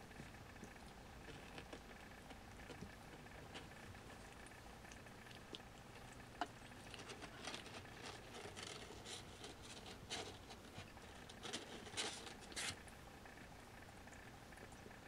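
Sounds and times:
kitten claws scratching: 1.2s - 5.7s, 6.4s - 12.8s.

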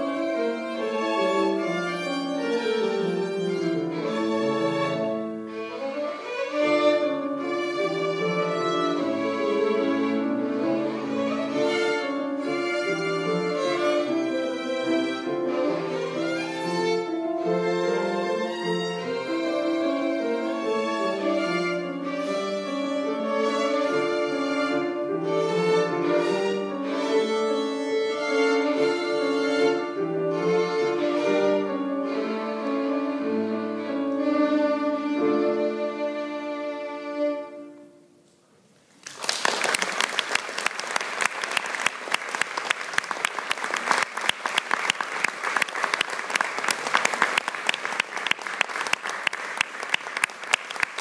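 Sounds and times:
violin with piano: 0.0s - 38.4s
audience applause: 39.0s - 51.0s.

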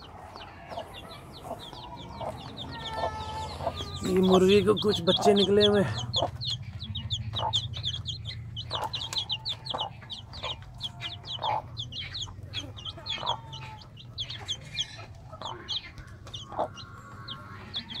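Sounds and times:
chicks peeping: 0.0s - 18.0s
hen clucking: 0.0s - 18.0s.

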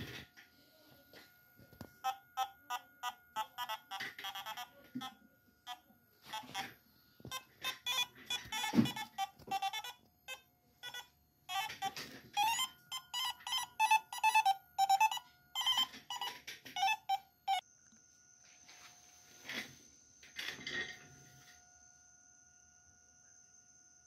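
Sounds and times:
faint high whine: 0.0s - 24.0s
electronic buzzes and beeps: 1.1s - 17.7s.

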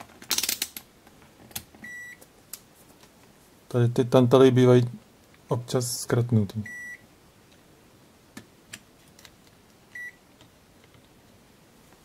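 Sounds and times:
multimeter beep: 1.8s - 2.2s, 6.6s - 7.0s, 10.0s - 10.2s.

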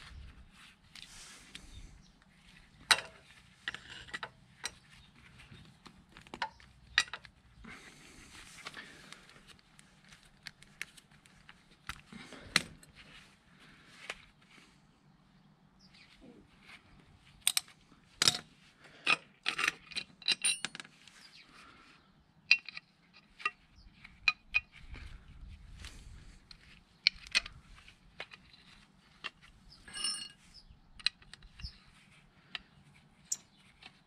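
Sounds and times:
metal tools clinking: 19.1s - 20.9s, 29.8s - 31.1s.

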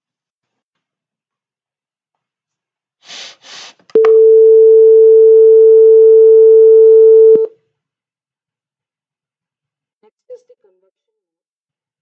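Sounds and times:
microwave oven beep: 4.0s - 7.5s.

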